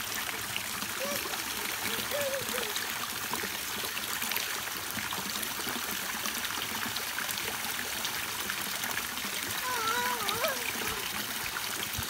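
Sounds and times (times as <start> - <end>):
water pouring into stone basin: 0.0 - 12.0.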